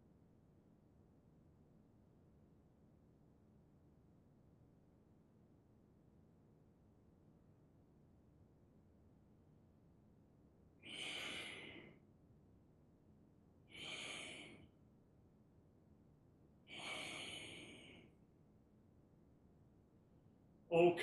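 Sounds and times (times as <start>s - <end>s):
person exhaling: 10.8s - 11.9s, 13.7s - 14.6s, 16.7s - 18.0s.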